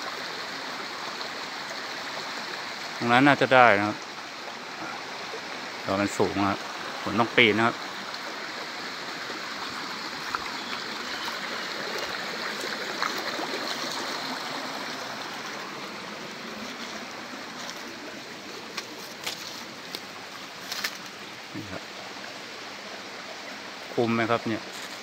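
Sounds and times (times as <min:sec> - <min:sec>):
stream flowing: 0:00.0 - 0:25.0
footsteps through undergrowth: 0:10.2 - 0:14.2, 0:16.3 - 0:21.2, 0:24.7 - 0:25.0.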